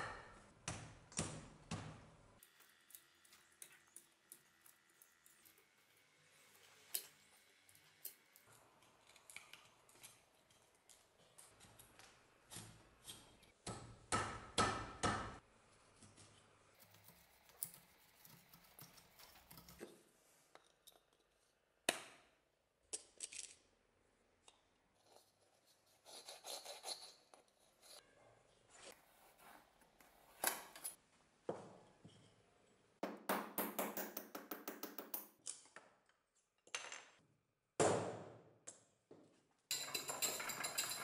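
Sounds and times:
metal tools clinking on workbench: 39.7 - 41.0.

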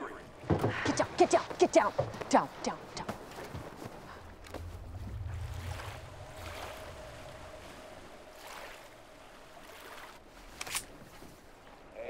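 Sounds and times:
water washing: 0.0 - 11.9
oars pulling through water: 0.0 - 12.0
sharp splash: 4.6 - 11.2.

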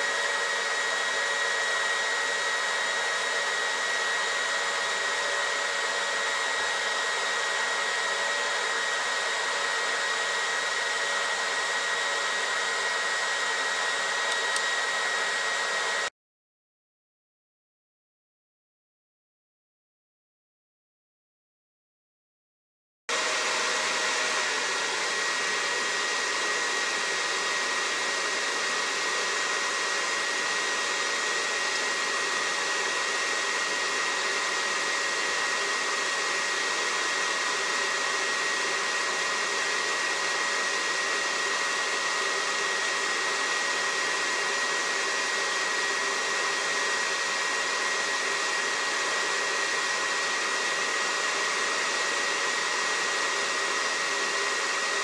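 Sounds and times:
heat gun blowing air: 0.0 - 16.1, 23.1 - 55.0.

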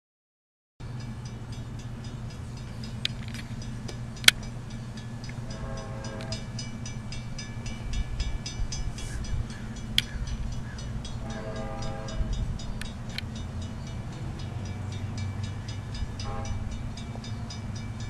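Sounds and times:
rapid high ringing: 0.8 - 18.0
steady low rumble: 0.8 - 18.0
distant locomotive horn: 4.8 - 18.0.

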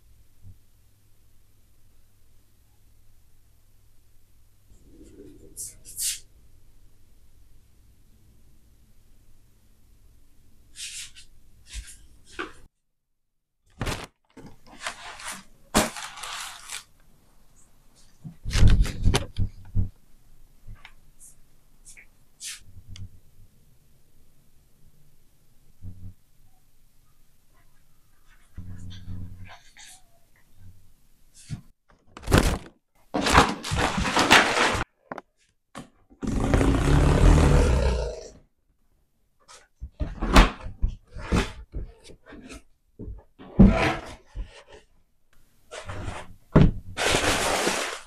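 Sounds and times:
paper packaging rustling: 13.7 - 17.1, 32.0 - 35.0, 47.0 - 48.0.

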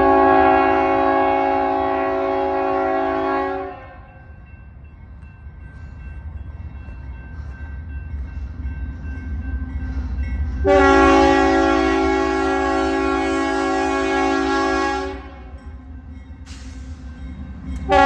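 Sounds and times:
locomotive air horn chord: 0.0 - 4.1, 10.6 - 15.5.

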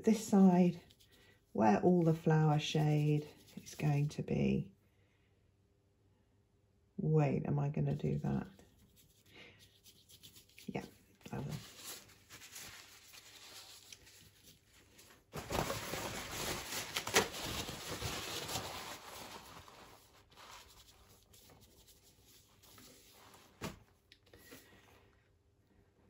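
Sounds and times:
brush scrubbing paint on paper: 2.7 - 3.9, 8.4 - 15.0, 16.0 - 23.5.

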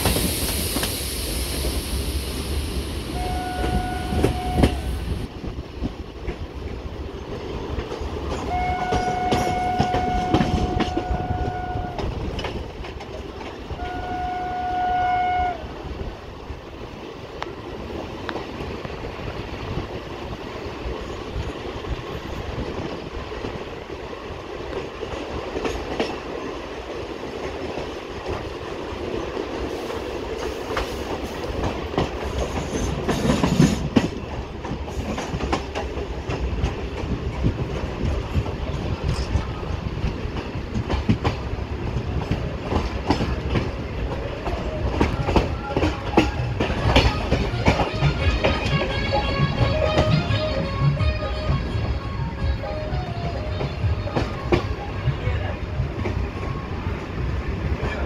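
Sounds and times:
train wheels clattering over rails: 0.0 - 1.8, 3.2 - 14.2, 16.0 - 58.0
train horn blast: 3.1 - 5.0, 8.5 - 12.2, 13.8 - 15.7, 47.0 - 55.6.

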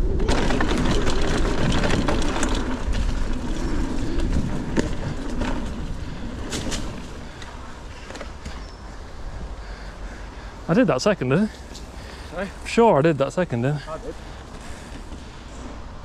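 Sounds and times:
wind on microphone: 0.0 - 7.3
bike knocking and rattling: 0.0 - 9.1
bike tyres rumbling on dirt: 0.0 - 16.0.

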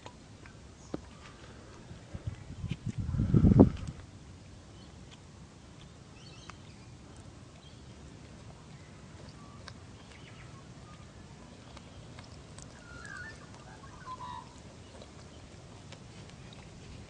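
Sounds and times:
faint wet drinking clicks: 4.7 - 17.0
bird chirps: 12.7 - 15.0.

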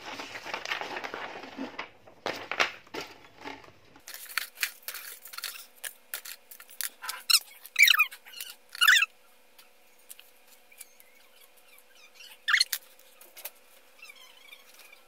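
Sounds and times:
paper rustling: 0.0 - 8.9.

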